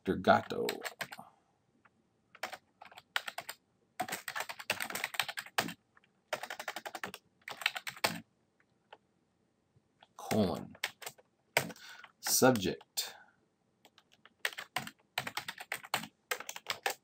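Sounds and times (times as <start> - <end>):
keyboard typing: 0.6 - 1.2, 2.4 - 8.2, 10.2 - 12.9, 13.8 - 17.0.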